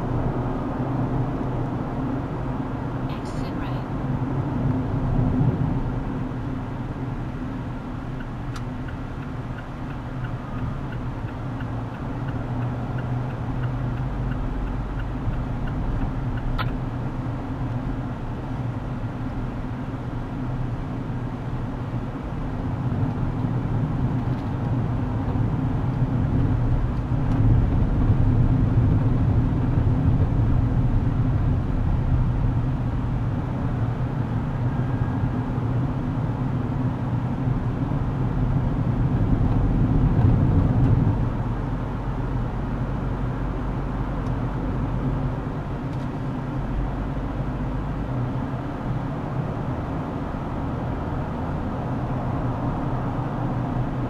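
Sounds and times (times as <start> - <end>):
car road and engine drone: 0.0 - 54.0
sharp click: 16.4 - 16.8.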